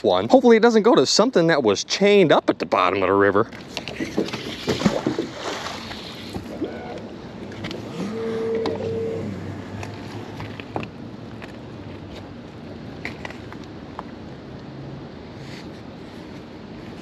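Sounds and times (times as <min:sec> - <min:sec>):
water washing against boat: 0:03.6 - 0:10.2
short steady tone: 0:07.9 - 0:10.1.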